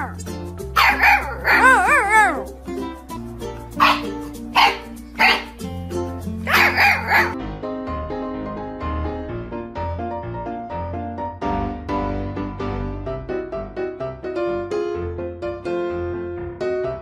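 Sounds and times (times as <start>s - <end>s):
puppy barking and howling: 0.0s - 0.2s, 0.8s - 2.5s, 3.8s - 5.5s, 6.5s - 7.4s
background music: 0.0s - 17.0s.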